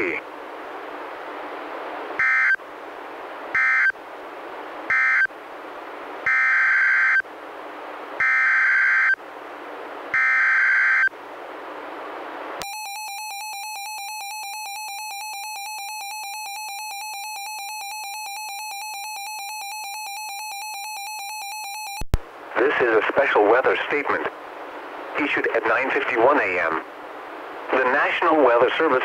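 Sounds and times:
receiver hiss: 0.0s - 20.2s, 21.9s - 29.0s
buzzy data tone bursts: 2.2s - 2.6s, 8.2s - 9.2s, 10.1s - 11.1s
fast-pulsing alarm tone: 2.2s - 2.6s, 3.6s - 4.0s, 4.9s - 5.3s, 6.3s - 7.2s, 8.2s - 9.2s, 10.2s - 11.1s.

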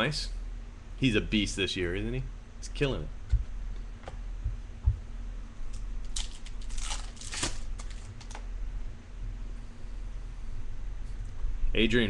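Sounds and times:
wrapper tearing and crinkling: 5.7s - 8.4s.

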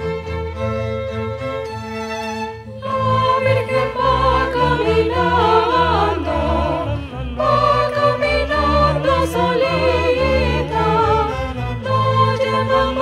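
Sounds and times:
string ensemble low notes: 0.0s - 13.0s
women singing a carol: 2.8s - 13.0s.

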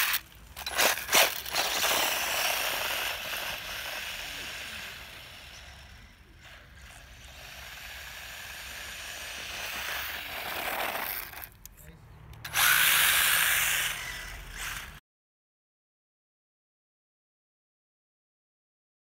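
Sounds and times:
toy car motor whining: 0.0s - 11.7s, 12.4s - 15.0s.

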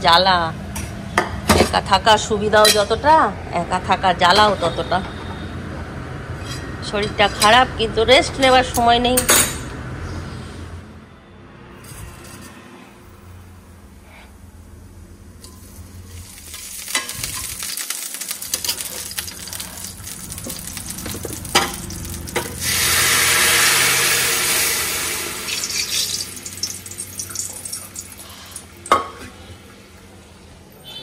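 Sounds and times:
spices sizzling in hot oil: 15.4s - 29.2s
oil popping: 16.3s - 29.1s
loud hiss of liquid poured in oil: 22.6s - 25.8s.

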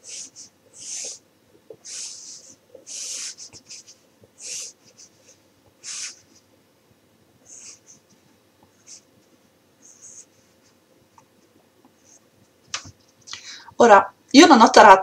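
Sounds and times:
stylus scratching on screen: 0.0s - 6.4s.

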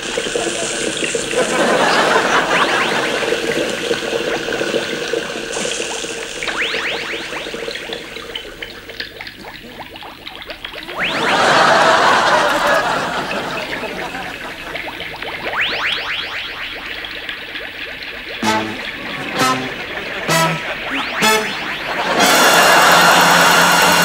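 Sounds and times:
rising whistle-like bloops: 1.7s - 3.6s, 6.4s - 8.8s, 10.8s - 23.5s
bubbling gurgling liquid: 2.2s - 11.3s, 12.2s - 19.3s, 20.8s - 22.0s.

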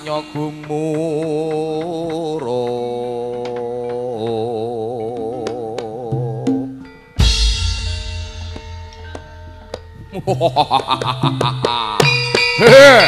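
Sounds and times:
man chanting with vibrato: 0.0s - 6.7s
gamelan playing: 0.0s - 13.0s
loud deep stroke: 7.2s - 10.3s.

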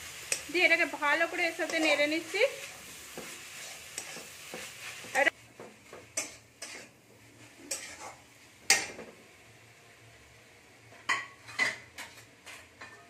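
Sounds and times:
frying sizzle: 0.0s - 13.0s
metal spatula scraping pan: 1.2s - 9.0s.

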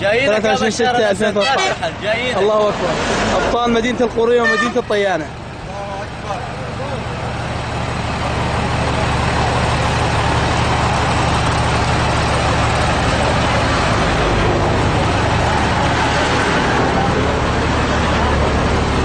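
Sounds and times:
truck engine idling: 0.0s - 19.0s.

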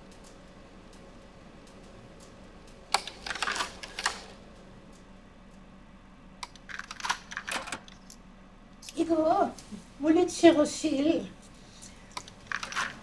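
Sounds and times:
faint steady hum: 0.0s - 13.0s
slide projector clicking: 1.6s - 4.4s.

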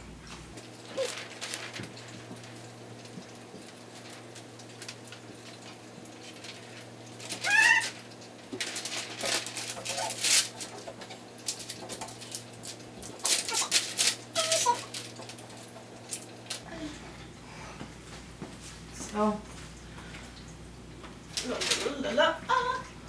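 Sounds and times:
plastic film crackling and squeaking: 0.6s - 16.7s, 21.4s - 22.1s
high-pitched animal cry: 7.3s - 8.0s, 14.4s - 14.9s.

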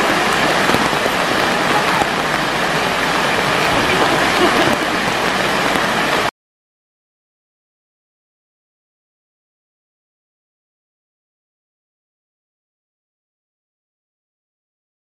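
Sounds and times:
stream rushing over rocks: 0.0s - 6.3s.

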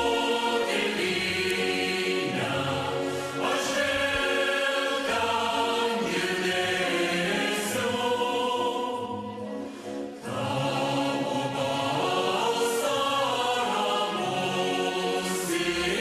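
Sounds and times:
choir singing held chords: 0.0s - 16.0s.

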